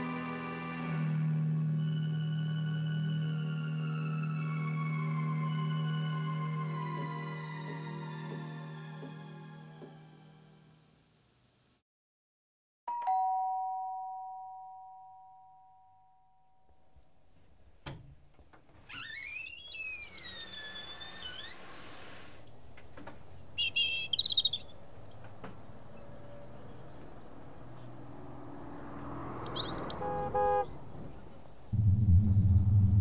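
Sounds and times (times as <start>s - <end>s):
two-tone doorbell chime: 12.9s - 16.3s
birds chirping: 22.5s - 33.0s.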